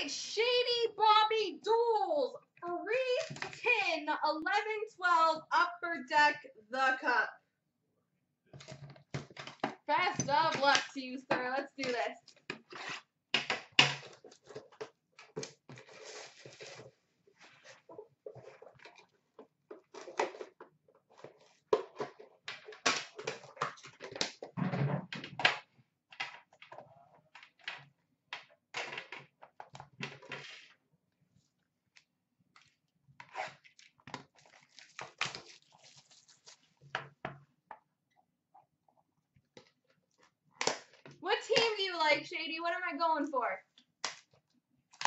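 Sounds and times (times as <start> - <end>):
foil wrapper tearing and crinkling: 34.4 - 36.8.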